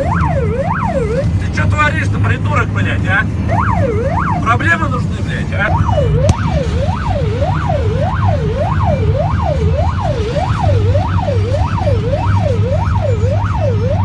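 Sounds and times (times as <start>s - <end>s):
electronic siren wailing: 0.0s - 1.3s, 3.5s - 4.6s, 5.6s - 14.0s
engine and road hum: 0.0s - 14.0s.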